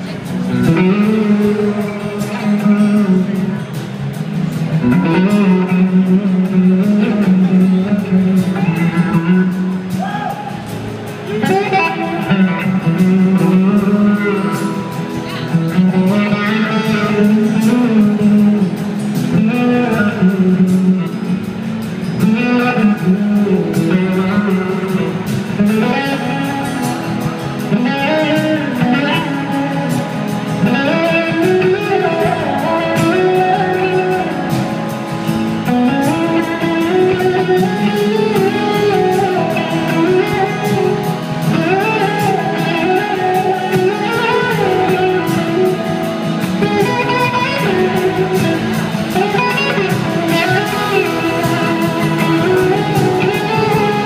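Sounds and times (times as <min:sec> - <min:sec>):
blues-rock band playing: 0:00.0 - 0:54.0
electric guitar lead: 0:00.0 - 0:54.0.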